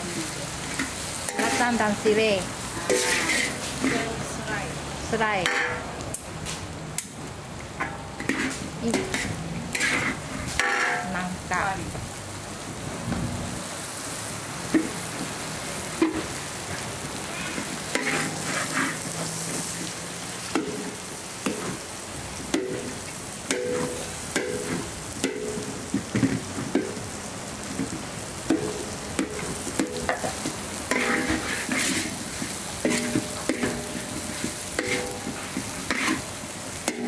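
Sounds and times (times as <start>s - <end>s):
food sizzling: 0.0s - 37.0s
metal ladle scraping a wok: 0.6s - 2.1s, 2.7s - 4.2s, 5.4s - 5.9s, 7.8s - 11.2s, 17.2s - 19.9s, 22.6s - 25.6s, 28.5s - 37.0s.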